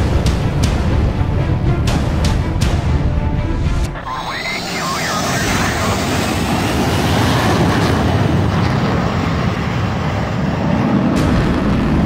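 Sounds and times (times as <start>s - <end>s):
jet engine roar: 3.9s - 12.0s.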